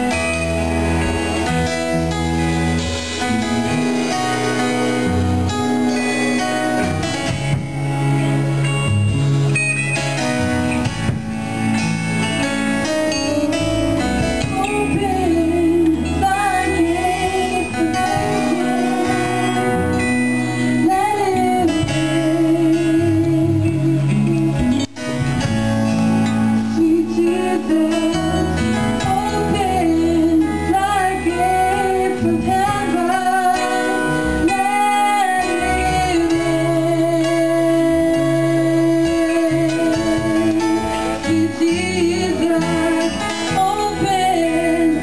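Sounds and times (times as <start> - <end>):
guitar accompaniment: 0.0 - 45.0
woman singing into a microphone: 12.8 - 25.0, 26.1 - 45.0.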